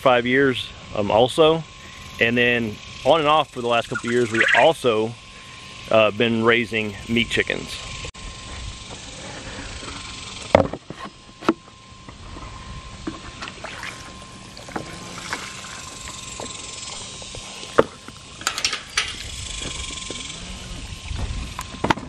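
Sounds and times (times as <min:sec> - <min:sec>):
outdoor background noise: 0:00.0 - 0:22.0.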